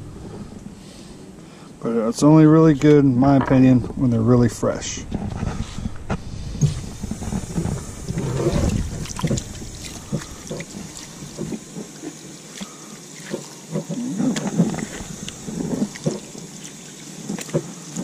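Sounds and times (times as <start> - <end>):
hose nozzle spraying water: 6.6 - 18.0
water splashing: 6.6 - 18.0.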